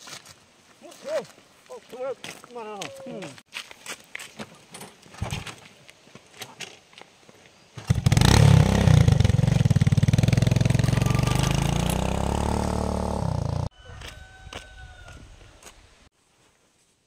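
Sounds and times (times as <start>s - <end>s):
small engine running: 7.9s - 13.7s.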